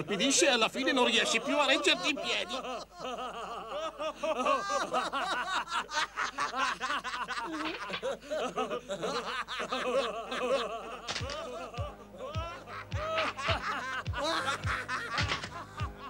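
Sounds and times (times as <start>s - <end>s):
cartoon voices laughing: 0.2s - 16.0s.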